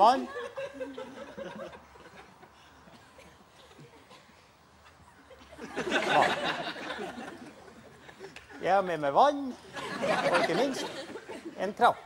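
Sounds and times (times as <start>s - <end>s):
audience laughter: 0.1s - 2.4s, 5.4s - 8.3s, 9.6s - 11.6s
man speaking: 8.6s - 9.6s, 10.2s - 10.9s, 11.5s - 12.0s.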